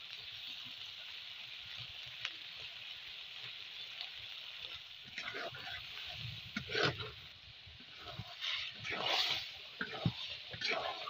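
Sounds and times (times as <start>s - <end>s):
curry sizzling in a wok: 0.0s - 11.0s.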